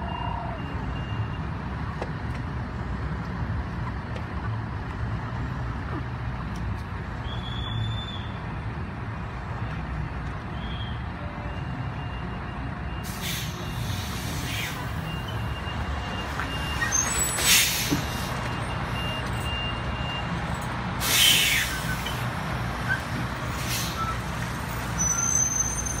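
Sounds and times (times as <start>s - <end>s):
truck engine rumble: 0.0s - 26.0s
air release hisses: 21.0s - 22.1s.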